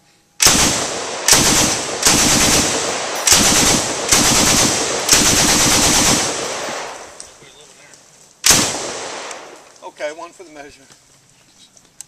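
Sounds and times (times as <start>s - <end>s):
machine gun firing bursts: 0.4s - 7.1s, 8.4s - 9.5s.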